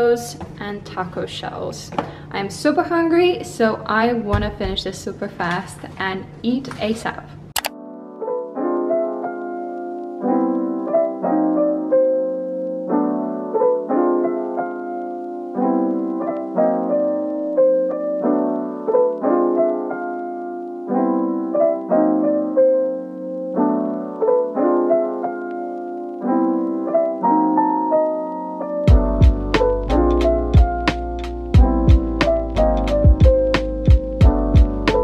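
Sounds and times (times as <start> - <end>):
piano music: 7.6 - 35.0.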